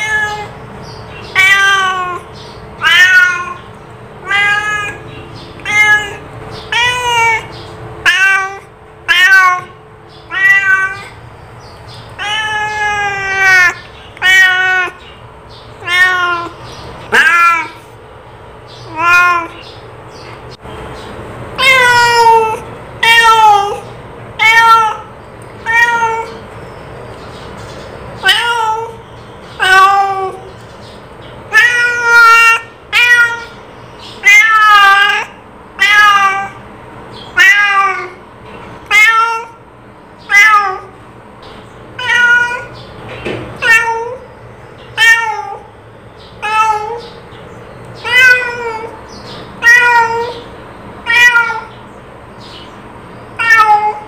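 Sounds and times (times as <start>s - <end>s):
cat meowing: 0.0s - 11.2s, 12.0s - 15.1s, 15.8s - 17.9s, 18.8s - 19.7s, 21.6s - 26.4s, 28.2s - 29.0s, 29.6s - 30.5s, 31.5s - 36.6s, 37.3s - 39.6s, 40.2s - 41.0s, 41.9s - 42.9s, 43.6s - 44.3s, 44.9s - 45.7s, 46.4s - 47.2s, 48.0s - 51.8s, 53.3s - 54.0s.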